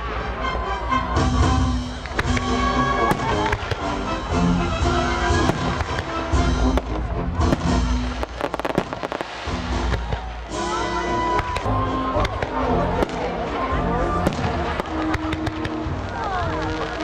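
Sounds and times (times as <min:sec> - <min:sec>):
fireworks bursting and crackling: 0:00.0 - 0:17.0
music with sustained notes: 0:00.0 - 0:17.0
sharp firework cracks: 0:01.9 - 0:04.0, 0:05.4 - 0:10.6, 0:11.3 - 0:13.4, 0:14.2 - 0:17.0.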